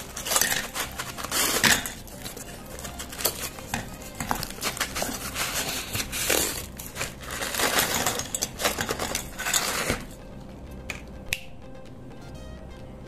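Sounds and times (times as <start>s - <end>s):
plastic tray crinkling: 0.0s - 10.1s
biscuits clattering into metal pot: 0.0s - 10.2s.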